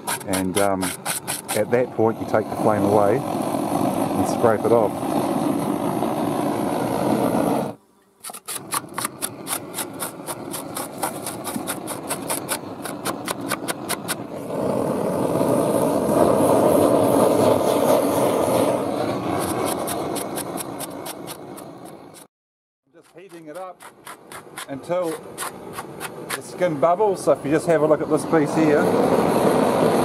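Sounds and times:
scraper rasping over skin: 0:00.0 - 0:01.6, 0:08.4 - 0:14.2, 0:23.0 - 0:26.4
gas torch burner rushing: 0:00.0 - 0:22.3, 0:23.0 - 0:30.0.

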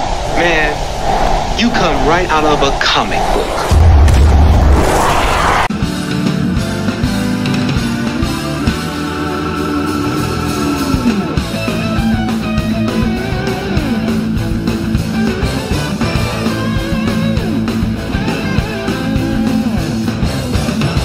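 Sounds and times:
instrumental rock guitar music: 0:05.8 - 0:20.8.

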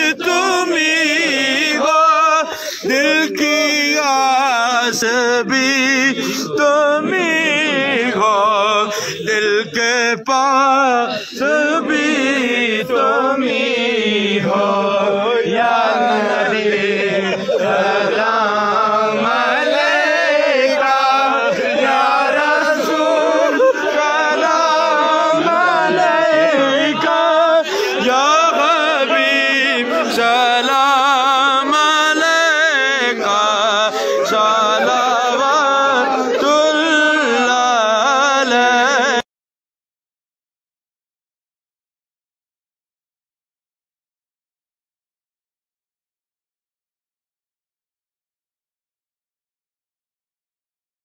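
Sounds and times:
person singing devotional song: 0:00.0 - 0:39.3.

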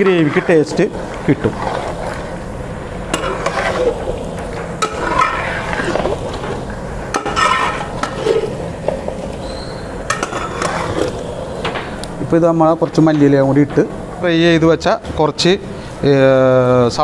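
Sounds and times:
ladle stirring thick gravy: 0:00.0 - 0:12.2
ladle clinking against pot: 0:07.2 - 0:08.5, 0:10.1 - 0:11.2.

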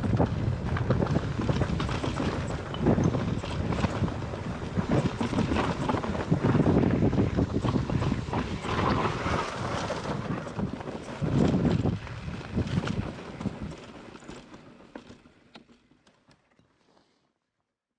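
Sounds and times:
wind noise on microphone: 0:00.0 - 0:14.1
tyre noise: 0:00.0 - 0:15.9
bike clicking and rattling: 0:00.0 - 0:16.8.

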